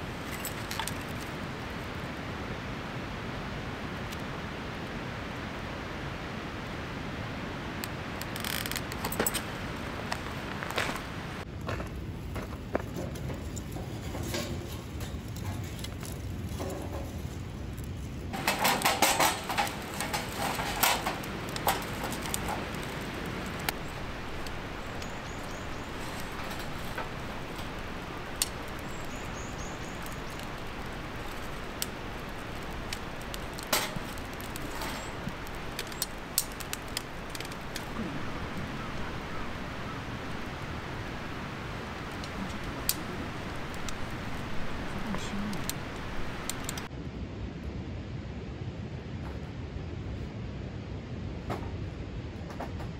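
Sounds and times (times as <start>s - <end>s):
wood fire crackling and popping: 0.0s - 46.9s
wood knocking and clattering: 18.4s - 22.8s.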